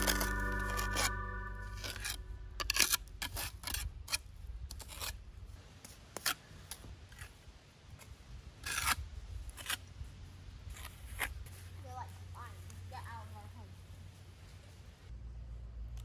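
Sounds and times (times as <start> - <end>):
trowel scraping mortar: 0.0 - 5.2.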